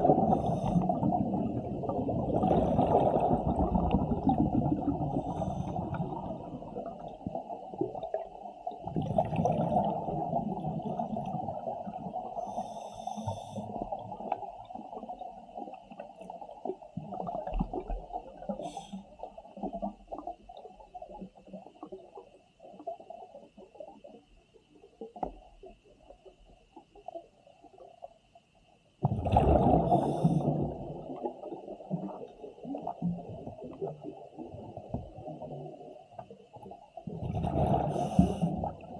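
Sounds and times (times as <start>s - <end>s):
underwater regulator breathing bubbles: 37.4s - 38.7s.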